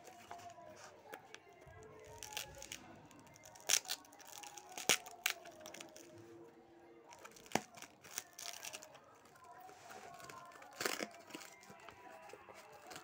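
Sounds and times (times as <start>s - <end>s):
plastic packaging crinkling: 0.0s - 6.2s, 7.1s - 13.0s
scissors snipping plastic packaging: 2.0s - 6.1s, 7.1s - 13.0s.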